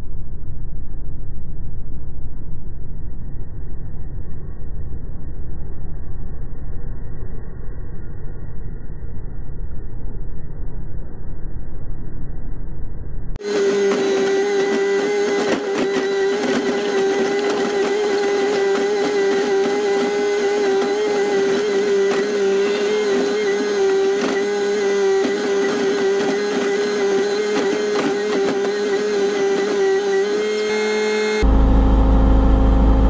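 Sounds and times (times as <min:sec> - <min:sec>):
excavator engine drone: 0:03.9 - 0:33.0
hydraulic whine: 0:13.4 - 0:33.0.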